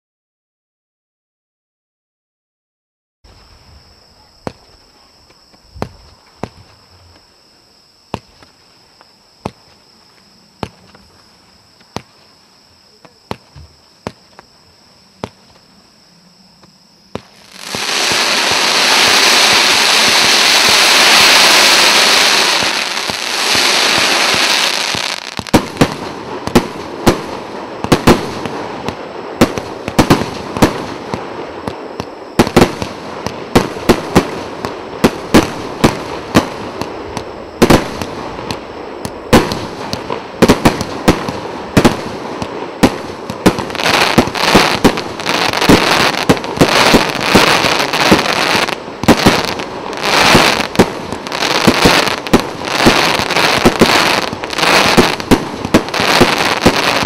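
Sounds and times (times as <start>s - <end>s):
dense firework crackling: 17.1s - 57.0s
firework shots and bursts: 17.1s - 57.0s.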